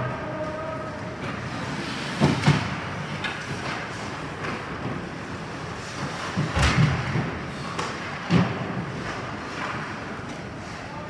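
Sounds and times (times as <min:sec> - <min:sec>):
arena noise: 0:00.0 - 0:11.0
knocks against rink boards: 0:05.9 - 0:10.4.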